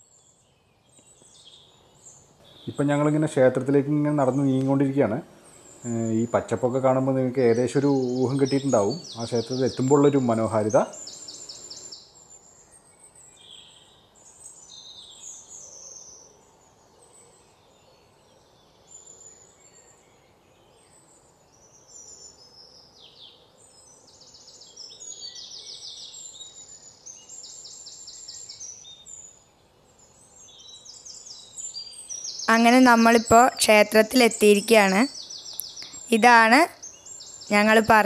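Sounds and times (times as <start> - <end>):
birds chirping and trilling: 0.0 - 38.0
faint outdoor hiss: 0.0 - 38.0.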